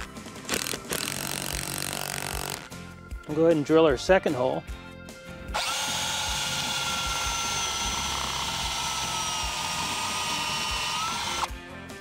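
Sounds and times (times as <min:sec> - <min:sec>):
cordless drill boring: 0:00.5 - 0:02.7, 0:05.5 - 0:11.5.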